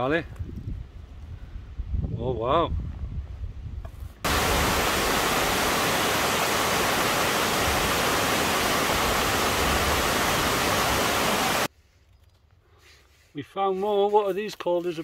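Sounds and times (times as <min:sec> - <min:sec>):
waterfall rushing over rocks: 0:04.3 - 0:11.7.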